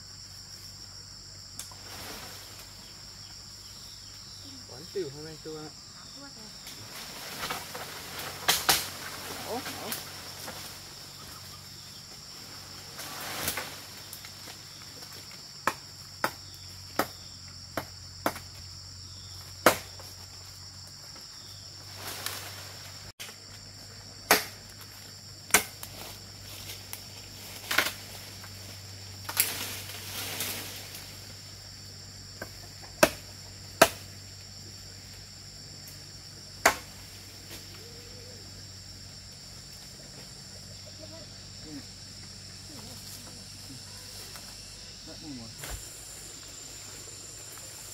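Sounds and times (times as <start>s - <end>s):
insects droning: 0.0s - 47.9s.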